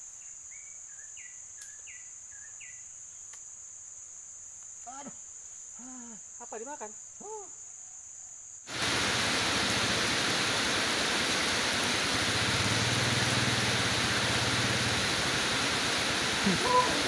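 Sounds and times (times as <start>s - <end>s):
heavy rain pouring: 8.7s - 17.0s.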